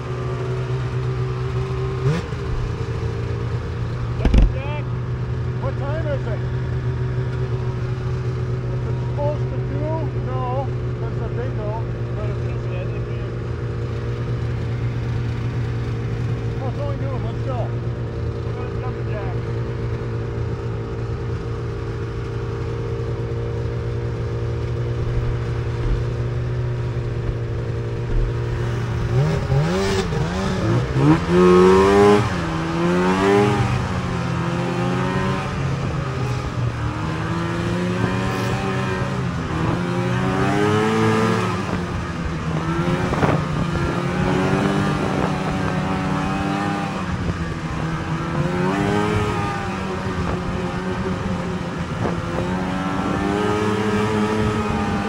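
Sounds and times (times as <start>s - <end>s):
snowmobile engine: 0.0s - 55.0s.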